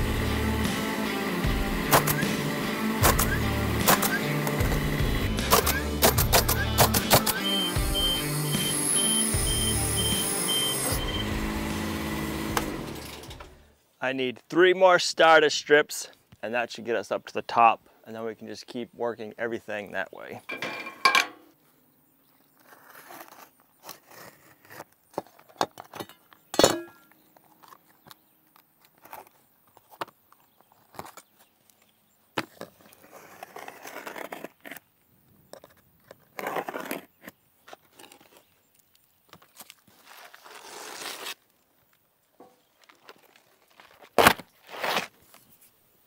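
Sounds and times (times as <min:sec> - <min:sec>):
utility knife scoring shingle: 0:00.8 - 0:09.2, 0:35.5 - 0:41.5, 0:42.4 - 0:45.5
handling clicks and knocks: 0:20.4 - 0:21.5.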